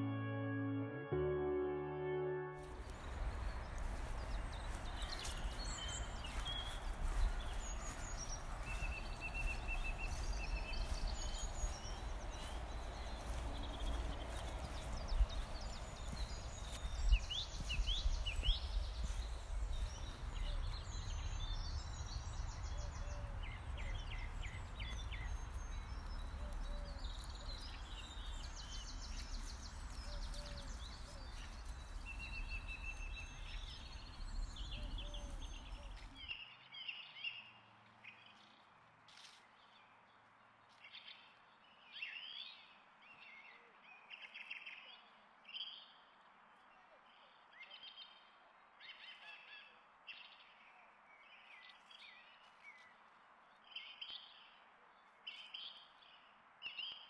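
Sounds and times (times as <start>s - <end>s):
small birds chirping: 2.6s - 39.8s.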